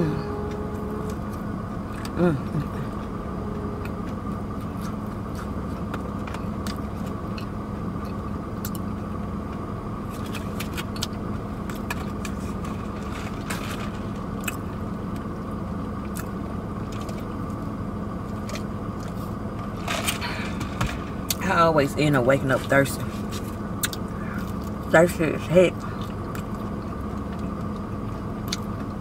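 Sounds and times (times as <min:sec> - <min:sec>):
idling car hum: 0:00.0 - 0:29.0
chewing: 0:03.8 - 0:08.8, 0:23.3 - 0:24.8, 0:25.8 - 0:28.9.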